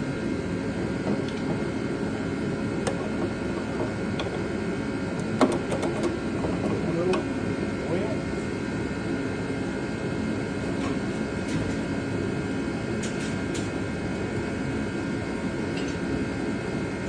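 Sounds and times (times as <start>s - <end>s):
machine low rumble: 0.0s - 10.6s.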